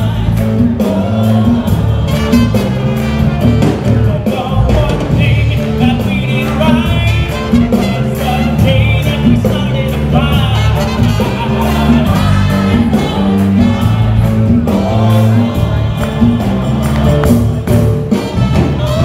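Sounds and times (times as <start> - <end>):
band playing: 0.0 - 19.0
voices singing: 0.0 - 19.0.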